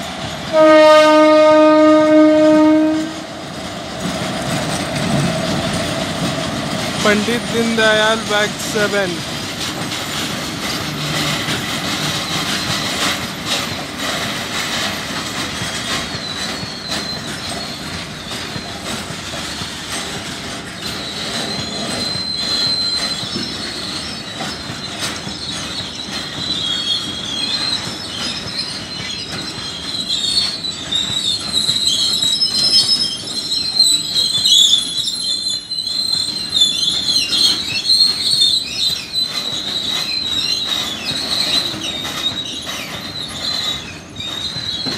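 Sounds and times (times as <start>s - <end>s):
freight wagon wheels clicking: 9.2s - 44.9s
high wavering wheel squeal: 15.5s - 20.2s, 20.8s - 44.9s.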